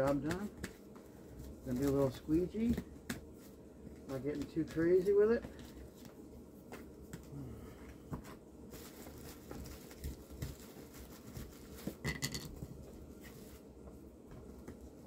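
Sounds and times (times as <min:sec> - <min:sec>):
foil crackle: 0:08.6 - 0:11.9
foil tape crinkling: 0:08.7 - 0:12.0.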